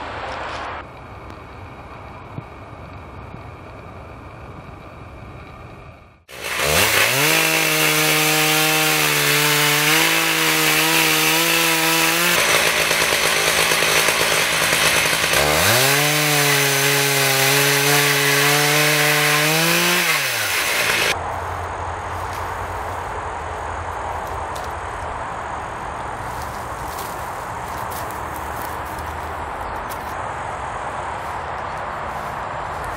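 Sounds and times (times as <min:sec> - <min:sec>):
chainsaw sawing wood: 0:06.3 - 0:21.2.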